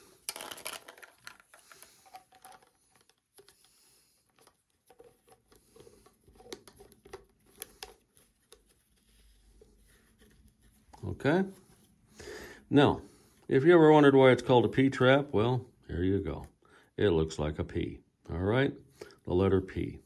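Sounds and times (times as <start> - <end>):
plastic clicks and scrapes: 0.2 - 11.0.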